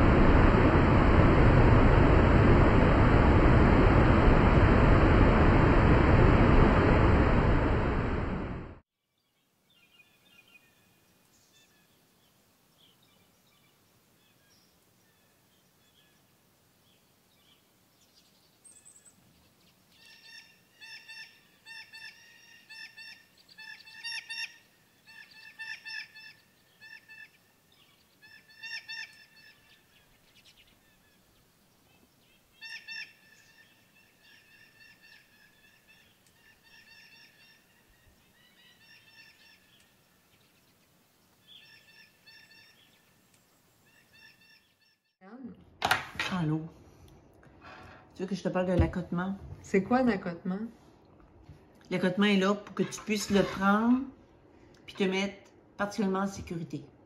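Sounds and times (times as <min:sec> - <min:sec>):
rushing turbulent water: 0:00.0 - 0:08.8
birds calling: 0:16.9 - 0:45.0.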